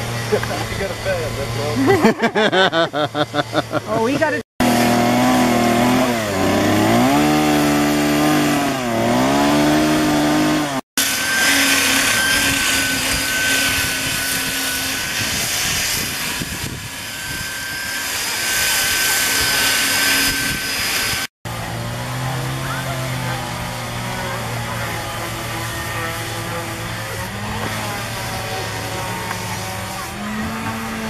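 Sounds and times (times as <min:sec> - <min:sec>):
chainsaw cutting wood: 0:00.0 - 0:31.0
electric grinder whining: 0:00.0 - 0:31.0.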